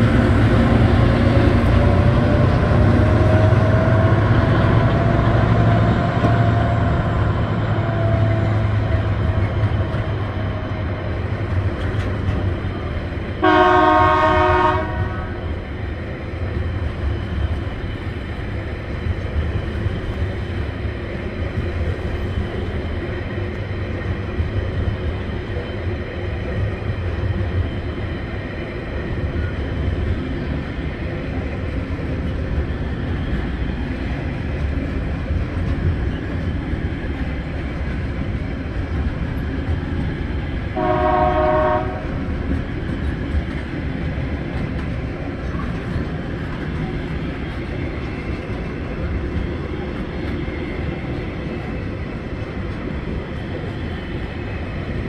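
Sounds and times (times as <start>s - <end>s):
freight train wheels rumbling on rails: 0.0s - 55.0s
train horn: 13.4s - 15.4s, 40.8s - 42.2s.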